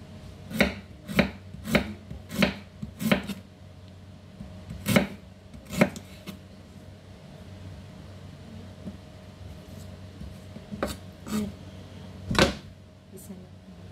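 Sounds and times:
knife chopping on cutting board: 0:00.5 - 0:03.4, 0:04.7 - 0:06.4, 0:10.2 - 0:11.4.

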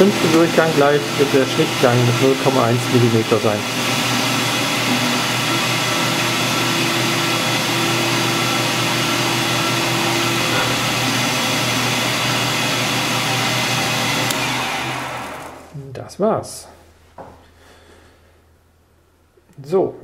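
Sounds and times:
metal lathe running: 0:00.0 - 0:15.7
steady whine: 0:00.0 - 0:15.8.

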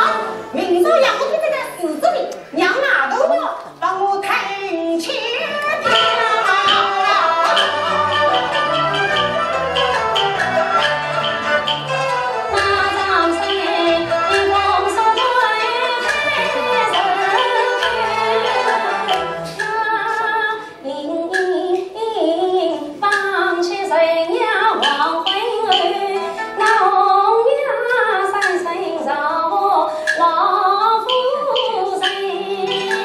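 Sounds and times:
woman singing opera: 0:04.2 - 0:07.9, 0:12.5 - 0:33.0
bowed and plucked strings: 0:05.4 - 0:20.1
sharp percussion clicks: 0:05.6 - 0:20.3, 0:21.3 - 0:22.0, 0:23.0 - 0:23.6, 0:24.7 - 0:26.9, 0:27.8 - 0:28.8, 0:30.0 - 0:33.0.

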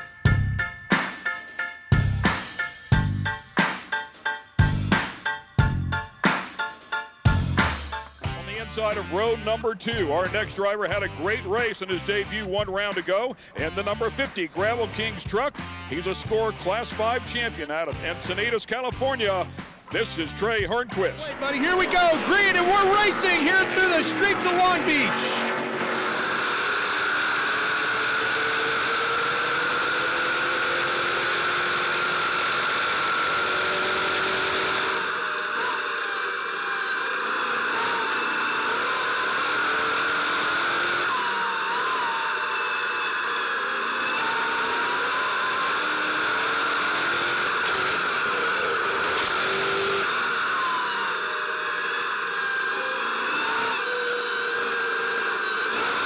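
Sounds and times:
racing truck engine whine: 0:20.9 - 0:56.0.

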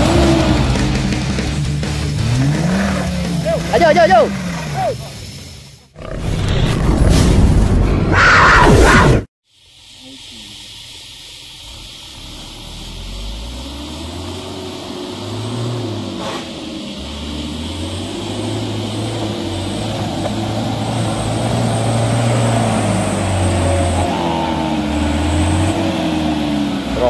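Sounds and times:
diesel truck engine working hard: 0:00.0 - 0:06.0, 0:10.2 - 0:27.0.

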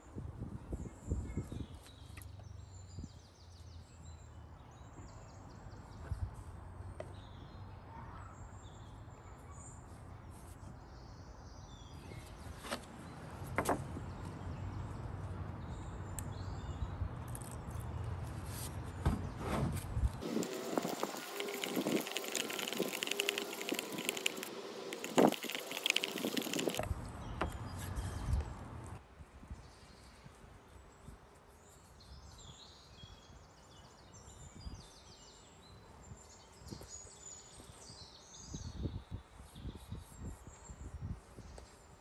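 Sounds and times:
stirring with wooden stick: 0:20.2 - 0:26.8.

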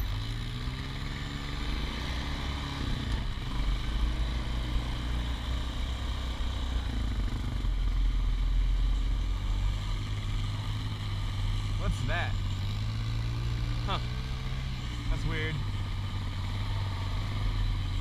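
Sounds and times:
atv engine running: 0:00.0 - 0:18.0.

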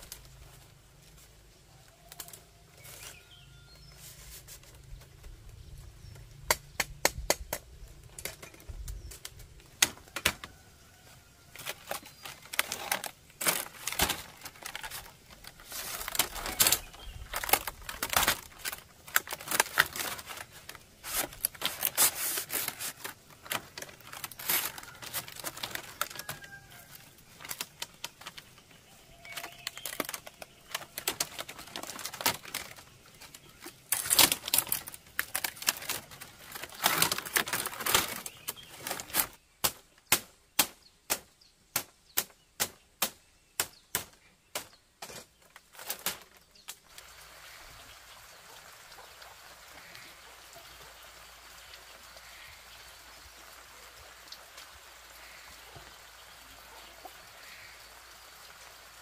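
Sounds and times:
bamboo strips clicking and rattling: 0:00.0 - 0:03.2, 0:04.0 - 0:47.4.

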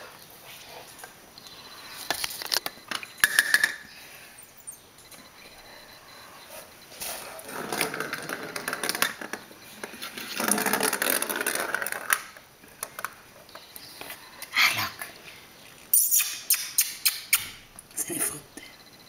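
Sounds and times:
plastic ball rolling on tiles: 0:07.1 - 0:13.2.

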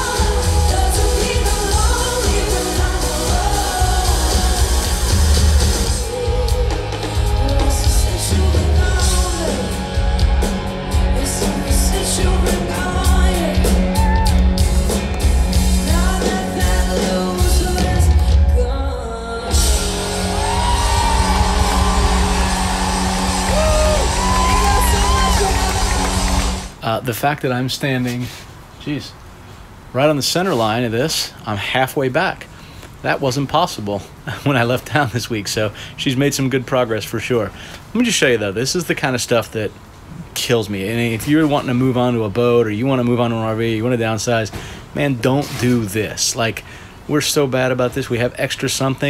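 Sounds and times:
woman singing lead: 0:00.0 - 0:14.4, 0:15.7 - 0:25.7
rock band playing: 0:00.0 - 0:18.4, 0:19.5 - 0:26.8
crowd yelling: 0:13.8 - 0:14.5, 0:19.8 - 0:26.8.

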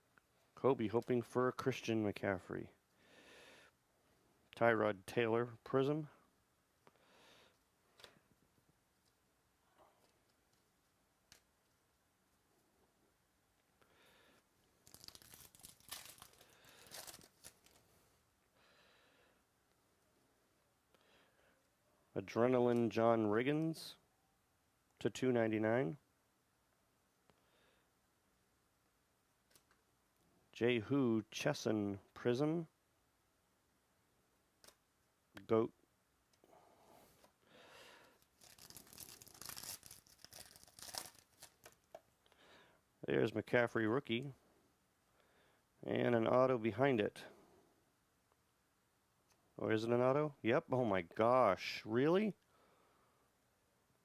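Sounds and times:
foil pack tearing: 0:14.8 - 0:17.8, 0:38.3 - 0:41.8
cards rustling: 0:14.8 - 0:18.0, 0:38.1 - 0:42.0.

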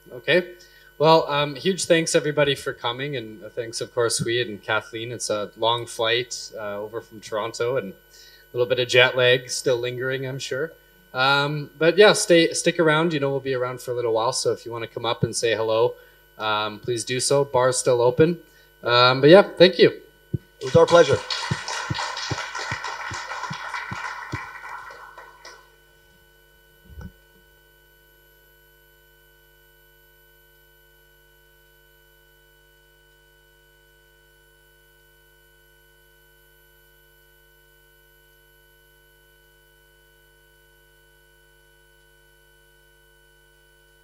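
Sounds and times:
faint room hum: 0:00.0 - 0:36.1
applause: 0:20.6 - 0:25.8.

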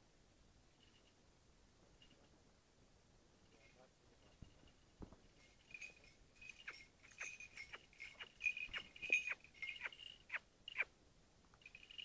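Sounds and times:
small bell jingling: 0:03.6 - 0:10.9, 0:11.6 - 0:12.0.

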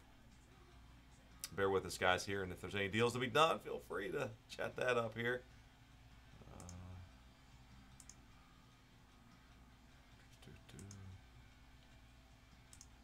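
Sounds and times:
computer mouse clicks: 0:06.5 - 0:06.8, 0:07.9 - 0:08.2, 0:10.7 - 0:11.1, 0:12.7 - 0:13.0.

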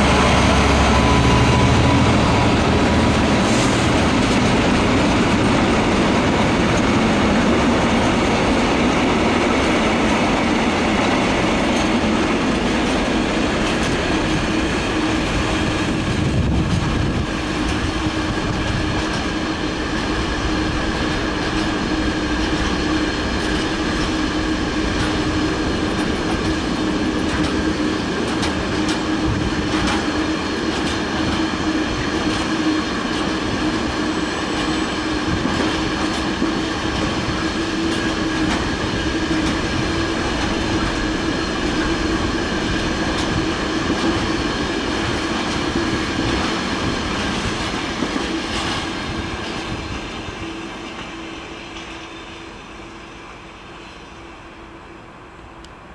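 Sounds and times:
freight train rolling past: 0:00.0 - 0:55.9
wheels clicking over rail joints: 0:24.8 - 0:33.3.

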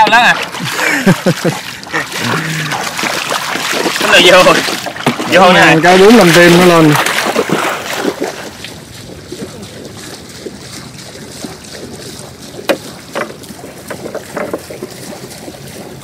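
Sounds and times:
wind and water noise: 0:00.0 - 0:16.0
sharp knocks on boat: 0:04.7 - 0:05.4, 0:12.6 - 0:15.2.

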